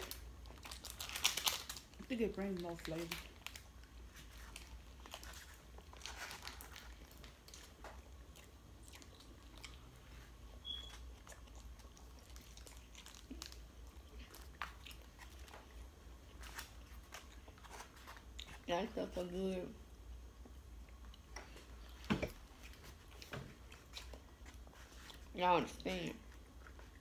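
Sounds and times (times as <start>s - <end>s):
chewing and crunching: 0.0s - 19.0s, 20.4s - 27.0s
low steady hum: 0.0s - 27.0s
high chirp: 10.6s - 11.0s.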